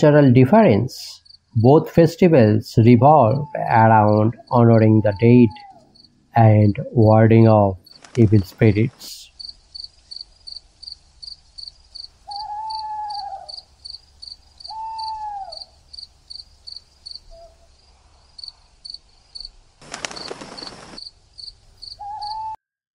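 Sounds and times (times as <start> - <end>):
cricket chirping: 1.1 - 1.7, 4.1 - 6.2, 9.2 - 22.6
owl hooting: 3.1 - 6.0, 12.2 - 13.7, 14.6 - 15.8, 17.2 - 17.7, 21.8 - 22.6.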